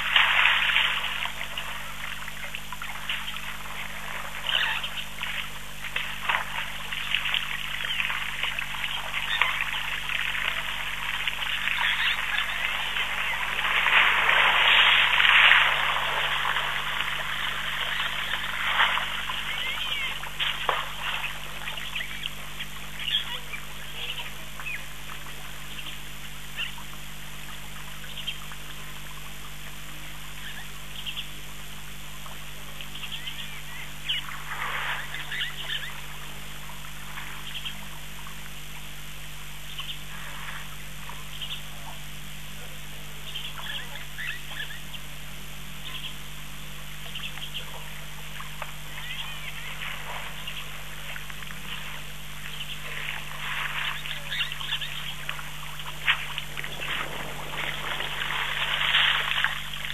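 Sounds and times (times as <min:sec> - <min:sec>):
steady low hum: 0:00.0 - 0:59.9
birds chirping and quacking: 0:04.4 - 0:05.3, 0:07.0 - 0:10.7, 0:11.4 - 0:24.9, 0:25.7 - 0:26.8, 0:30.4 - 0:31.4, 0:33.0 - 0:36.0, 0:37.4 - 0:37.9, 0:39.7 - 0:40.1, 0:41.3 - 0:42.0, 0:43.2 - 0:45.1, 0:45.8 - 0:46.3, 0:47.0 - 0:48.0, 0:48.9 - 0:50.8, 0:52.5 - 0:59.2.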